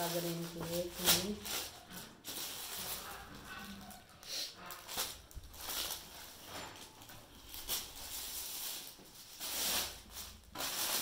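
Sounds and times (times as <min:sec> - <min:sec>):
rustling of suits handled: 0:00.0 - 0:03.6, 0:04.7 - 0:11.0.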